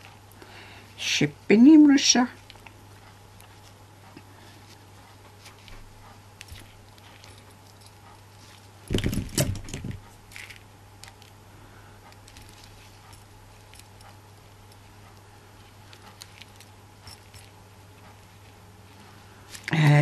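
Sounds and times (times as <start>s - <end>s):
bump and rustle: 8.9s - 10.6s
metal rings clicking and jingling: 15.9s - 17.6s.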